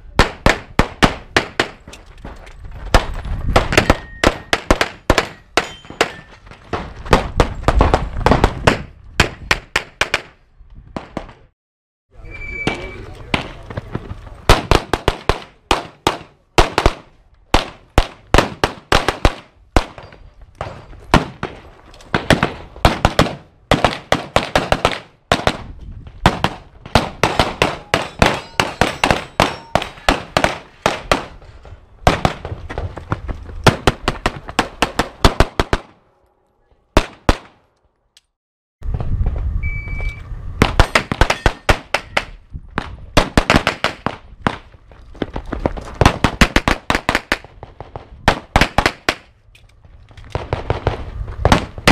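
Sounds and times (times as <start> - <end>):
rapid pistol gunfire: 14.5 - 20.0, 22.1 - 25.6, 26.2 - 31.3, 43.2 - 44.6, 46.0 - 47.5.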